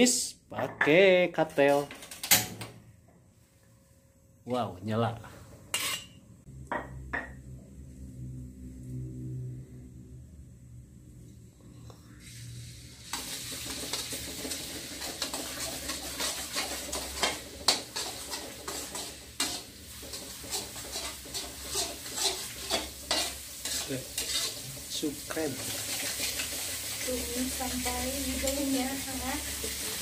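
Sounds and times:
metal spatula scraping a pan: 5.7 - 6.2, 13.0 - 30.0
spice paste sizzling in oil: 12.2 - 30.0.

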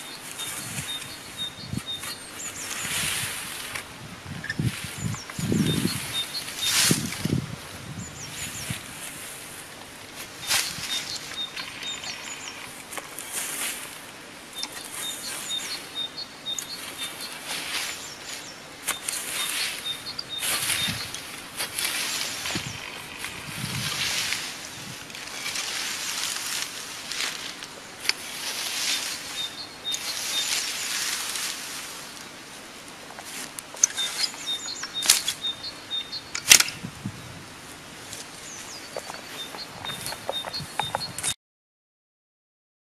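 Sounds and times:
small bird chirping: 0.0 - 3.0, 4.4 - 7.4, 10.4 - 13.4, 14.5 - 23.9, 28.8 - 31.2, 33.8 - 36.5, 38.4 - 41.3
grass rustling under rake: 0.0 - 41.3
sharp clicks: 36.3 - 36.8.

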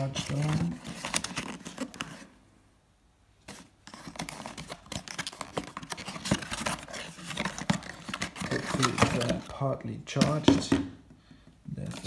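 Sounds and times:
cardboard box rustling and scraping: 3.5 - 9.5.

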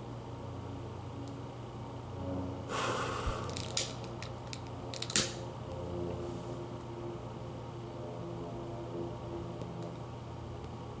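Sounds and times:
short breathy hiss: 2.7 - 3.6.

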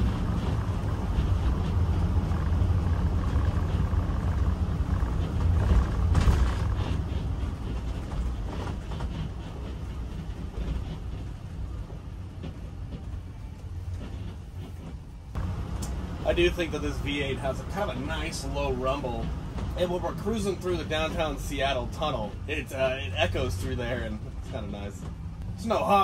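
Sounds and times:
engine rumble inside vehicle: 0.0 - 26.0.

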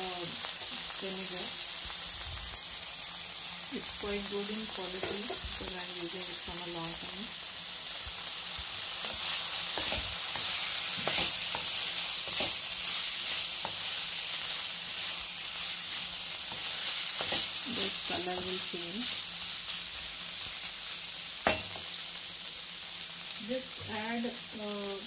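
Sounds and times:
food sizzling in hot oil: 0.0 - 25.0
spatula scraping a pan: 9.0 - 18.5.

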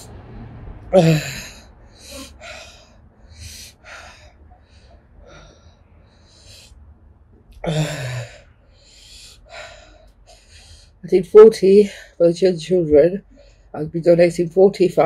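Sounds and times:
woman groaning: 0.9 - 2.3, 7.6 - 8.4
woman breathing hard in puffs: 1.8 - 6.8, 7.7 - 11.0.

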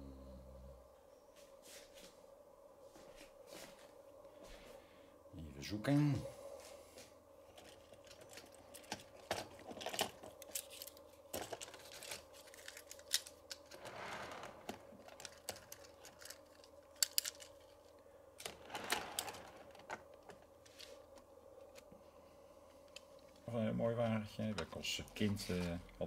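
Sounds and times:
faint steady hum: 0.0 - 26.0
model train wagons clicking: 7.6 - 17.8, 18.4 - 20.8.

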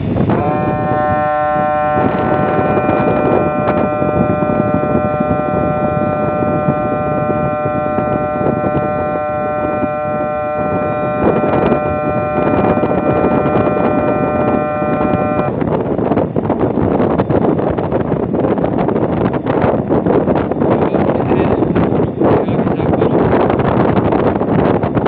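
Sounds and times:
wind buffeting microphone: 0.0 - 25.0
chord of high tones: 0.4 - 15.5.

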